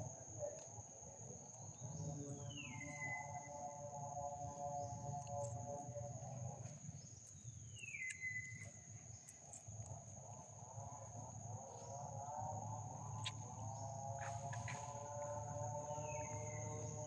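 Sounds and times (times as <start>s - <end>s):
insects buzzing: 0.0s - 17.0s
falling insect call: 11.0s - 17.0s.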